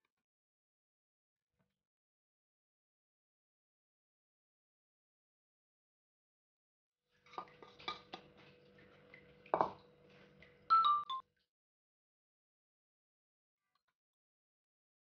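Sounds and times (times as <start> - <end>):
clinking against glass bowl: 9.4 - 9.8
three-note ringing chime: 10.7 - 11.2.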